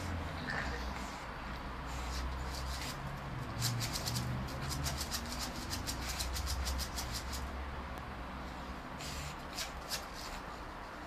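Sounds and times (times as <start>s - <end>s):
dog claws scratching wall: 2.1s - 7.5s, 9.0s - 10.5s.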